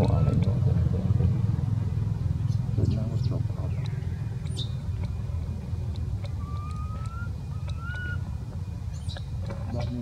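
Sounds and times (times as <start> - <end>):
rising whistled calls: 0.0 - 0.4, 3.2 - 4.9, 6.3 - 9.3.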